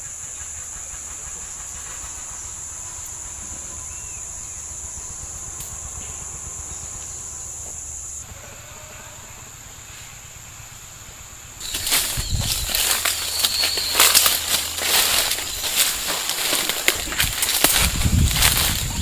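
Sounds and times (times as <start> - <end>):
high-pitched insect drone: 0.0 - 19.0
low rumble: 11.9 - 19.0.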